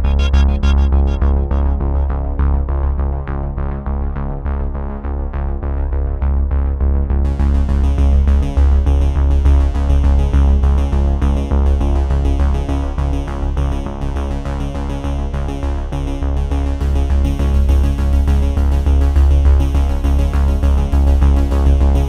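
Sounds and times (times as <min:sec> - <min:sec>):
synthesizer music with heavy bass: 0:00.0 - 0:03.3.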